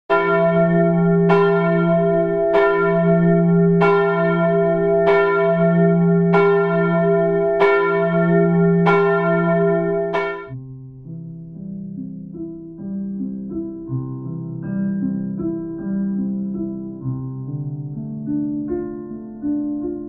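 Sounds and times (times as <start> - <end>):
large church bell tolling: 0.1 - 10.6.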